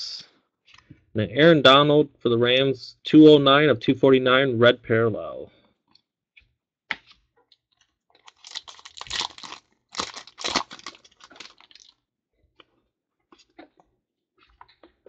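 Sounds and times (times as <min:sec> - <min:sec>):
foil wrapper crinkling: 0:08.2 - 0:12.0.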